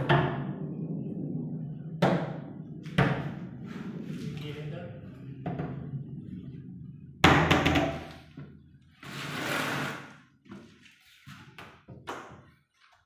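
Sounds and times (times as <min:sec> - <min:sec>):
wardrobe door scraping: 0:09.0 - 0:10.2.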